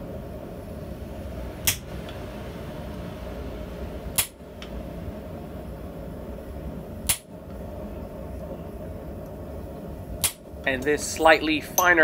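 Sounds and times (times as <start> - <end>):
low background rumble: 0.0 - 12.0
metallic clink of chisel on anvil: 11.7 - 12.0.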